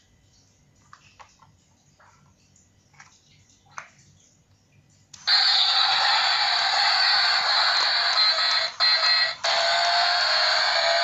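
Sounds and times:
tinny electronic toy sound effect: 5.2 - 11.0.

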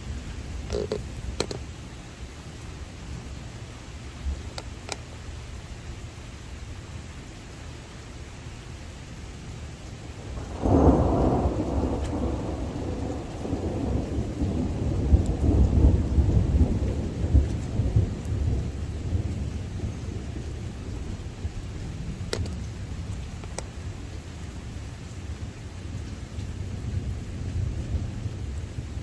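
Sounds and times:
steady rain: 0.0 - 29.0
thunder clap and rumble: 10.2 - 29.0.

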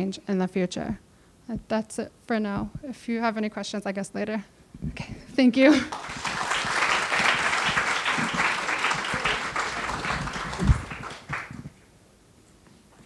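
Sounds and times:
audience applauding: 5.9 - 11.7.

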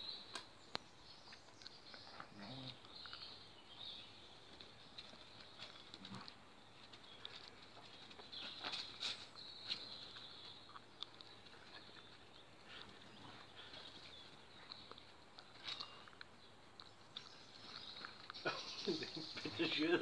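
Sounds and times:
dog paws scratching on paving: 4.3 - 16.1.

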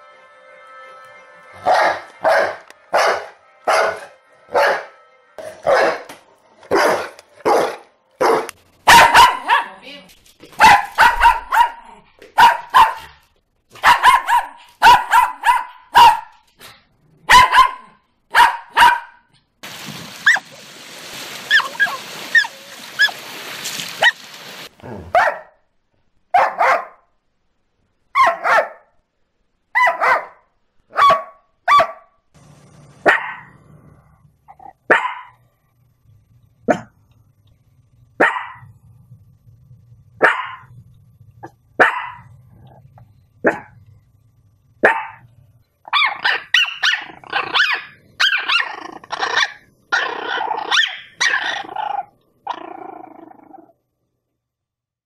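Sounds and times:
small dogs barking: 5.7 - 6.1, 6.7 - 9.8, 10.6 - 13.2, 13.8 - 16.4, 17.3 - 19.2, 25.1 - 25.6, 26.4 - 27.0, 28.2 - 28.8, 29.8 - 32.0, 33.0 - 33.5, 34.9 - 35.4, 38.2 - 38.7, 40.2 - 40.7, 41.8 - 42.3, 44.8 - 45.2, 45.9 - 51.6
surf washing over pebbles: 19.6 - 24.7.

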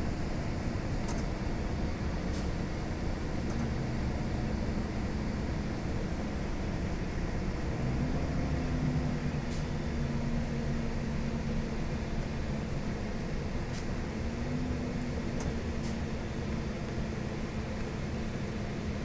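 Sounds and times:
diesel bus engine running: 0.0 - 19.0
road noise: 0.0 - 19.0
faint light ticks: 15.4 - 17.0.

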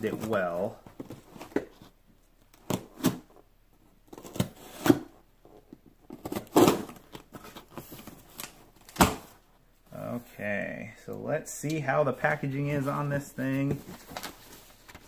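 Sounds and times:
tape and cardboard ripping: 6.1 - 9.2.

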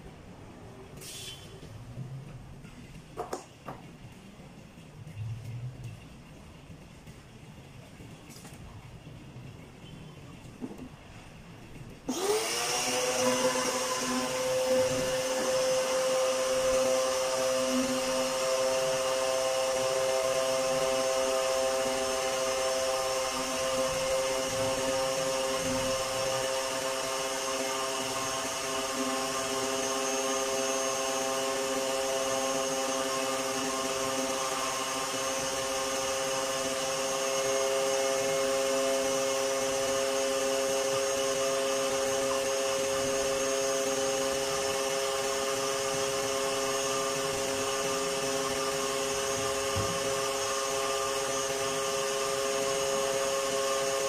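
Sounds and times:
pressure washer motor humming: 12.1 - 54.0.

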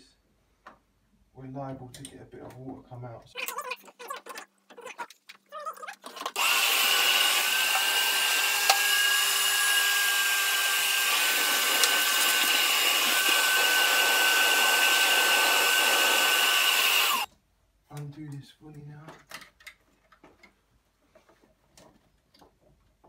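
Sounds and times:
vacuum cleaner running: 6.4 - 17.3.

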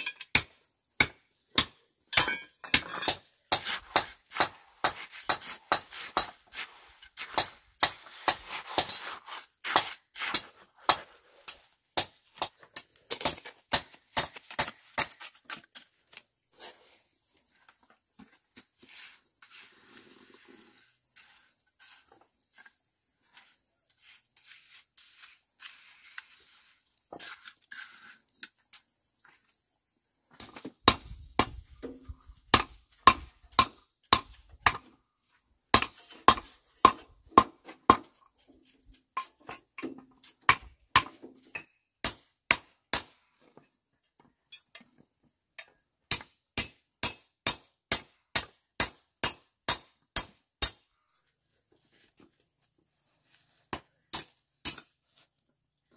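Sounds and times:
hammer striking steel bar: 46.1 - 50.8.

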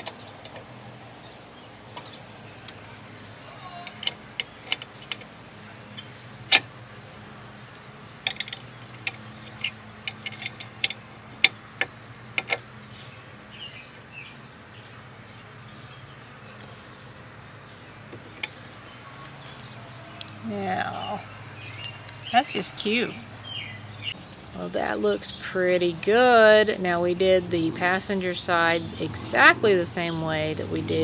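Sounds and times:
metal parts clicking and knocking: 3.8 - 5.3, 8.2 - 12.7.

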